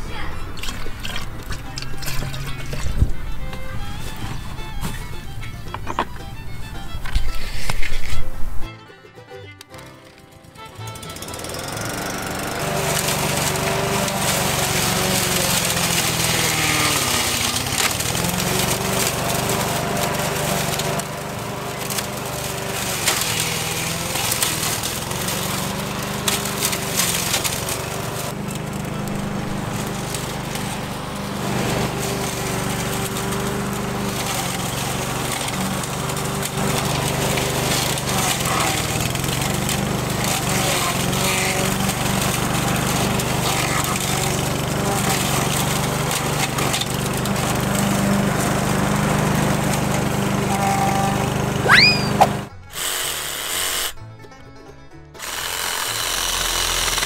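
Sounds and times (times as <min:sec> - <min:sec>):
lawn mower engine under load: 0:00.0 - 0:52.8, 0:55.2 - 0:57.0
stems cracking against blade: 0:00.5 - 0:08.4, 0:11.1 - 0:47.9.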